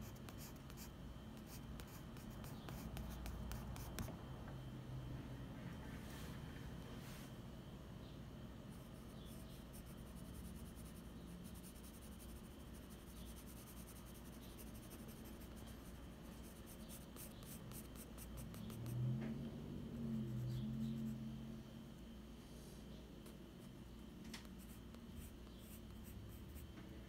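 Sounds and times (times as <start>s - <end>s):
pencil scratching on paper: 0.0s - 4.1s, 8.7s - 19.0s.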